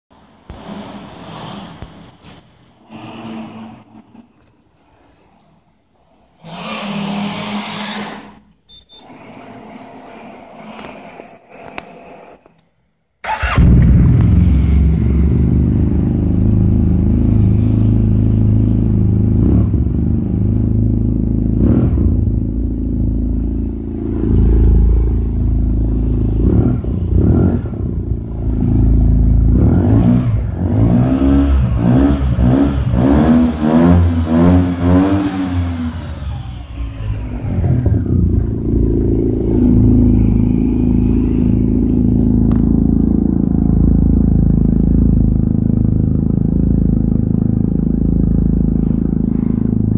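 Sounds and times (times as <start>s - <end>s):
motorcycle engine idling and revving: 13.2s - 49.9s.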